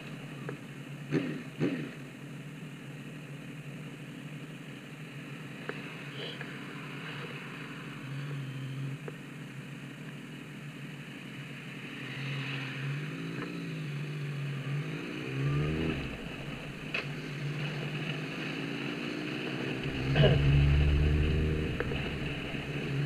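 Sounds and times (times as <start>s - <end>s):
vehicle engine revving: 14.6s - 18.2s, 18.9s - 23.0s.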